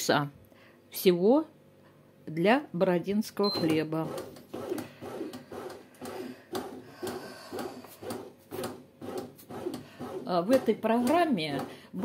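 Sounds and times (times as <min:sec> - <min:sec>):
bread machine paddle scraping dough: 0:03.7 - 0:12.0.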